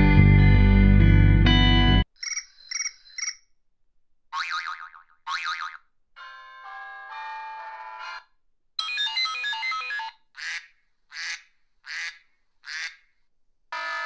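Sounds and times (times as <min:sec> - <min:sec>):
electronic ringtone jingle: 0:08.8 - 0:10.1.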